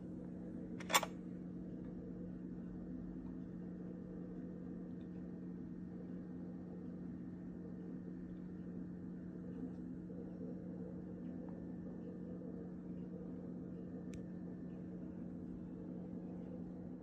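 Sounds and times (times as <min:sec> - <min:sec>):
low hum with held tones: 0:00.0 - 0:17.0
faint click: 0:14.1 - 0:14.3.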